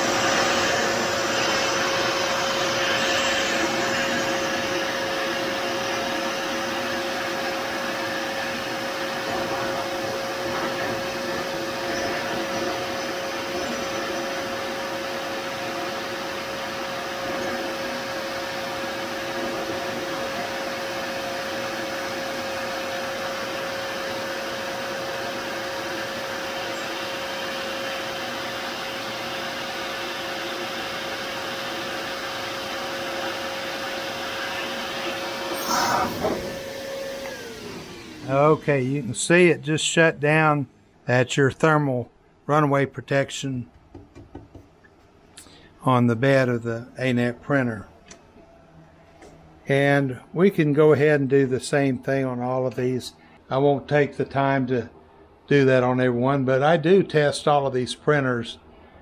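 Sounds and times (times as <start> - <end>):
electric air blower whining: 0.0 - 40.5.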